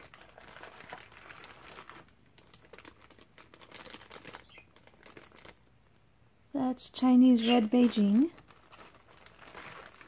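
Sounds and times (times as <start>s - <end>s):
plastic bags crinkling: 0.0s - 5.7s, 7.3s - 10.0s.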